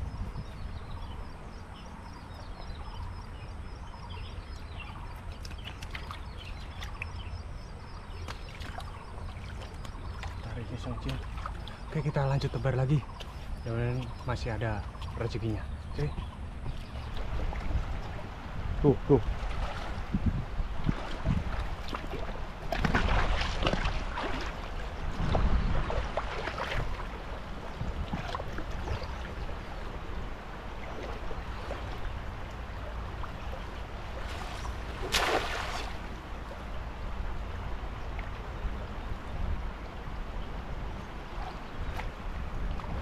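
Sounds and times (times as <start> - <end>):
shallow river water running: 0.0 - 43.0
water splashing: 8.0 - 15.2, 16.0 - 36.7.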